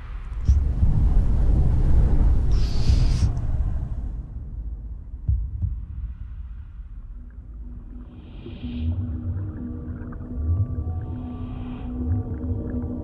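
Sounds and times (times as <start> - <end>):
deep throbbing rumble: 0.0 - 13.0
short hiss: 2.5 - 3.5
heartbeat thumps: 4.9 - 7.6.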